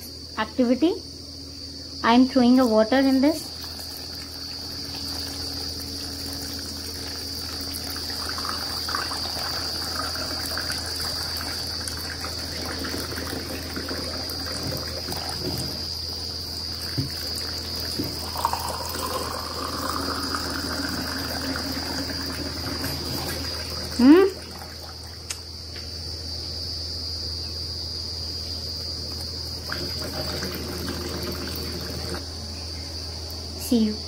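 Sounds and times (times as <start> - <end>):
high insect drone: 0.0 - 34.0
muddy water trickling into glass: 3.1 - 25.5, 29.2 - 32.2
small knocks: 16.9 - 17.2, 17.9 - 18.2.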